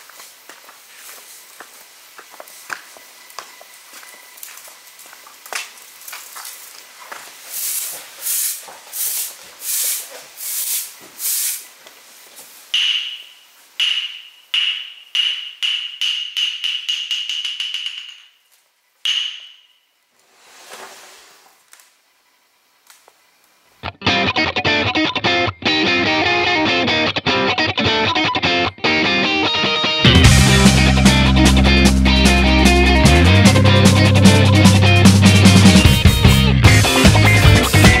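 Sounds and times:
soft hiss: 0:00.0 - 0:13.8, 0:19.8 - 0:23.8
broom sweeping stone: 0:06.3 - 0:12.7, 0:20.2 - 0:21.6
ringing strikes: 0:12.8 - 0:18.4.

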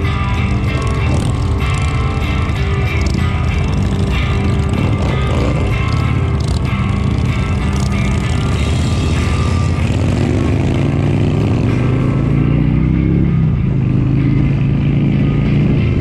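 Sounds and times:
motorcycle engine accelerating: 0:00.0 - 0:16.0
steady low rumble: 0:00.0 - 0:16.0.

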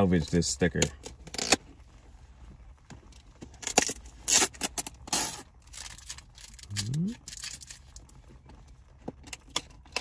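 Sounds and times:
packing tape scraping on cardboard: 0:03.6 - 0:05.4.

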